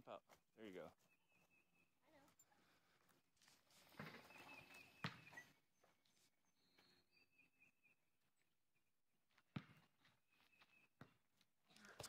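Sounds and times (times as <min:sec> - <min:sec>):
faint high chirps: 0:04.0 - 0:08.4.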